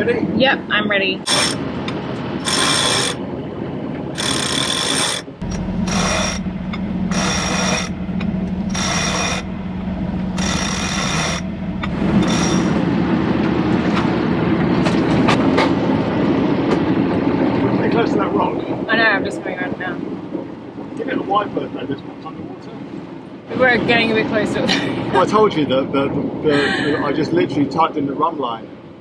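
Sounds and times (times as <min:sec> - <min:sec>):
steady low hum: 0:01.2 - 0:18.9
winch winding in bursts: 0:01.3 - 0:01.6, 0:02.4 - 0:03.2, 0:04.2 - 0:05.2.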